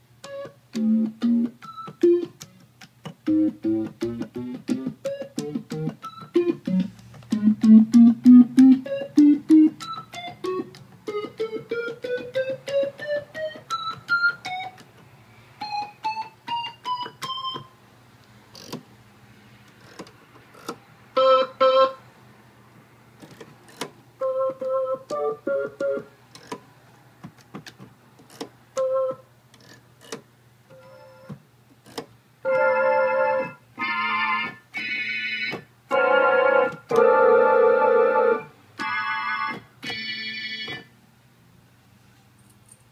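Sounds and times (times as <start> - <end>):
combo organ staccato notes: 0.2 - 2.5, 3.2 - 14.8.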